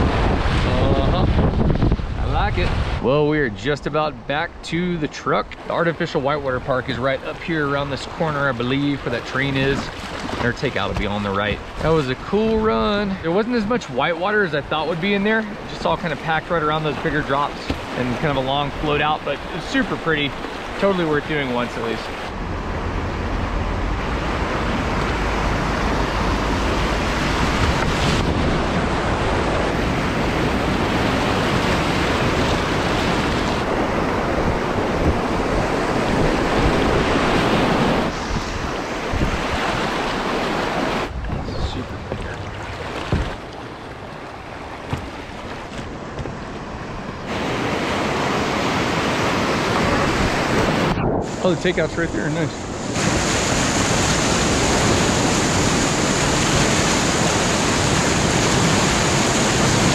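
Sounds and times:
wind buffeting microphone: 0:00.0 - 0:03.5, 0:22.2 - 0:59.9
whitewater rushing and splashing: 0:00.0 - 0:59.9.

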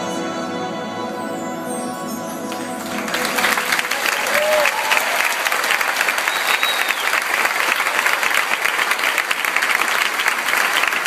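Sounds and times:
audience applauding: 0:02.5 - 0:11.0.

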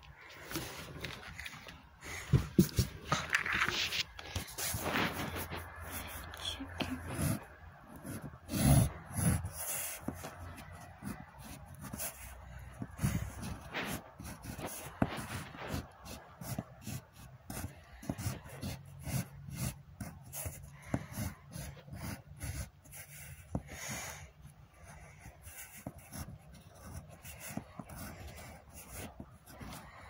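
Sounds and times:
cloth rustling against microphone: 0:00.0 - 0:07.5.

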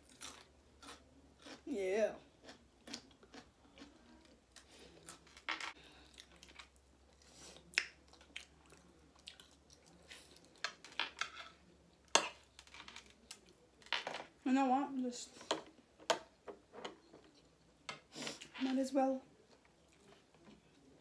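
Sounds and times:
people chewing: 0:02.4 - 0:11.0
cutlery clicking on plates: 0:10.7 - 0:13.0.

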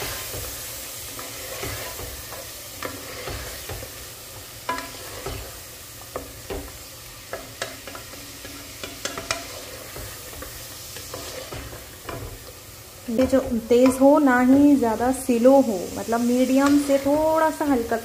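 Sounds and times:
wooden spatula scraping pot: 0:00.0 - 0:04.0, 0:04.7 - 0:06.7, 0:07.4 - 0:12.5
meat sizzling in hot oil: 0:00.0 - 0:18.0.

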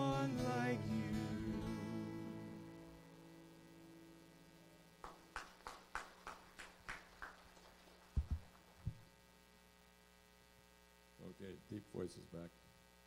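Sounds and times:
worship song: 0:00.0 - 0:03.0
steady electrical hum: 0:00.0 - 0:13.0
footsteps on hard floor: 0:08.2 - 0:09.0
microphone handling thumps: 0:08.2 - 0:09.1.

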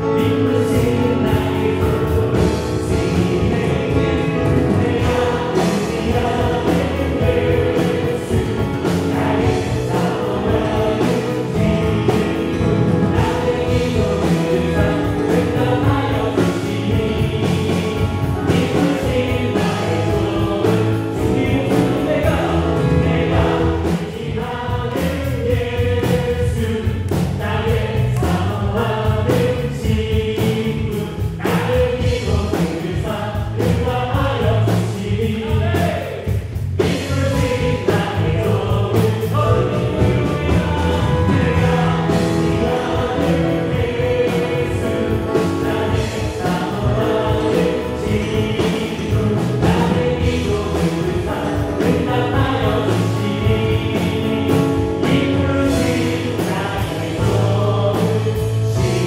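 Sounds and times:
live gospel band playing: 0:00.0 - 0:59.0
several voices singing: 0:00.0 - 0:59.0.

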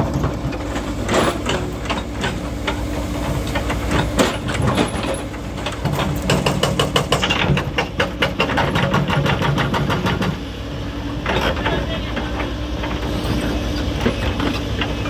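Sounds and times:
diesel engines running: 0:00.0 - 0:15.0
hydraulic breaker hammering rock: 0:01.0 - 0:10.4.

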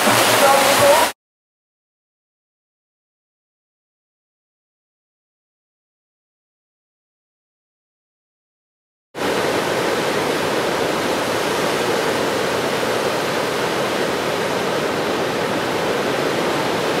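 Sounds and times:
ocean surf breaking: 0:00.0 - 0:01.2, 0:09.2 - 0:17.0.

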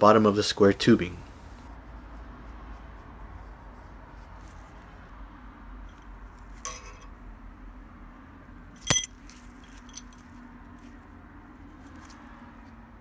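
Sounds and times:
metal brackets clinking: 0:06.7 - 0:07.1, 0:08.8 - 0:10.2.

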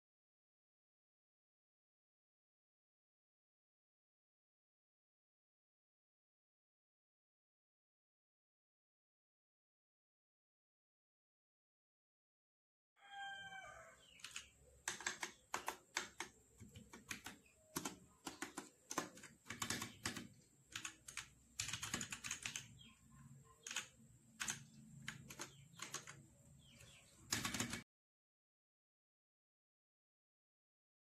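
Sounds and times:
mechanical keyboard typing: 0:14.2 - 0:22.8, 0:23.6 - 0:26.2, 0:27.3 - 0:27.8.

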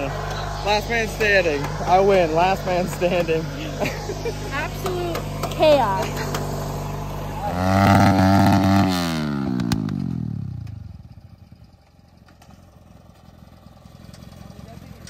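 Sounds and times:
small engine revving hard: 0:00.0 - 0:10.7
small engine running: 0:00.0 - 0:15.0.

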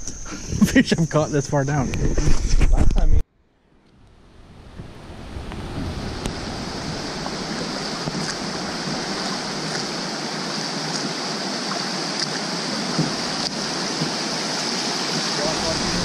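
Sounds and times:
river water rushing: 0:04.9 - 0:16.0.

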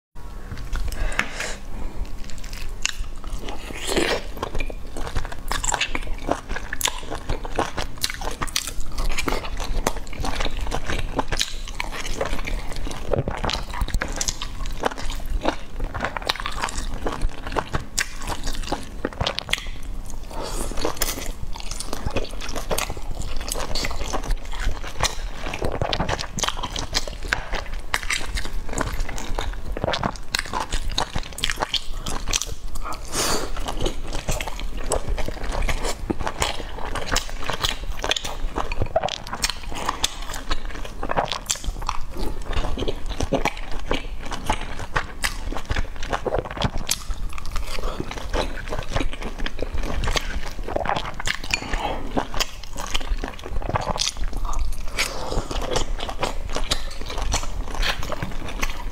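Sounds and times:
close chewing and mouth smacks: 0:00.4 - 0:58.9.

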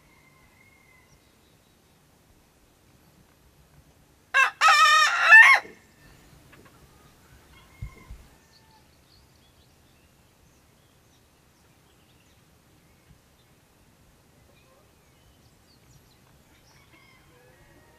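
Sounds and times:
rooster crowing: 0:04.4 - 0:05.7, 0:16.7 - 0:17.9.

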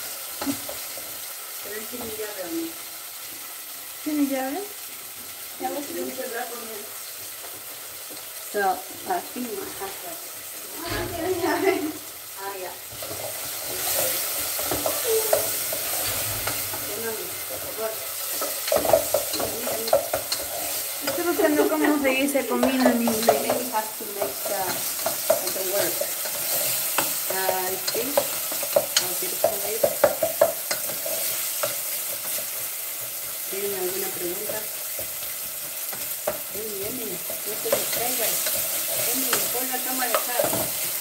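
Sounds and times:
vegetables frying and sizzling: 0:00.0 - 0:41.0
wooden spoon scraping a pot: 0:12.9 - 0:21.8.

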